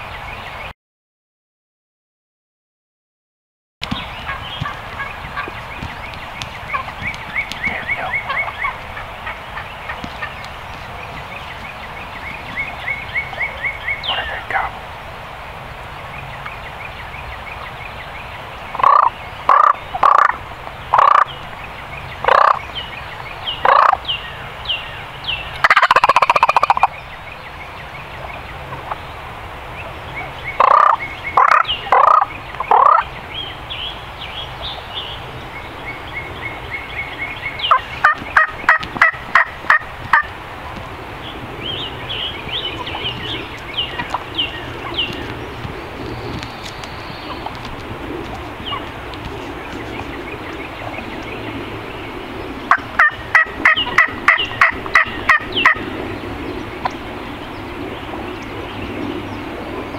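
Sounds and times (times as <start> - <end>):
turkeys gobbling: 4.2 - 5.7, 6.6 - 11.0, 18.8 - 21.3, 22.3 - 22.6, 23.6 - 24.0, 25.6 - 26.9, 30.6 - 33.1, 37.7 - 40.4, 42.6 - 46.4, 47.2 - 49.4, 52.7 - 55.8
turkeys yelping: 4.2 - 11.6, 18.8 - 21.3, 22.2 - 22.6, 23.6 - 24.0, 25.6 - 26.9, 30.6 - 33.1, 37.6 - 40.8, 42.2 - 51.0, 52.7 - 55.8.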